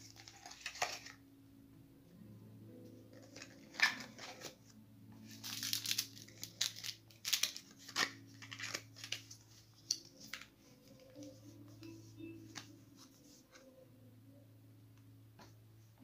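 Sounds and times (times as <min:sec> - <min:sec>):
packaging rustling and crinkling: 0:00.0 - 0:01.2, 0:05.2 - 0:11.2.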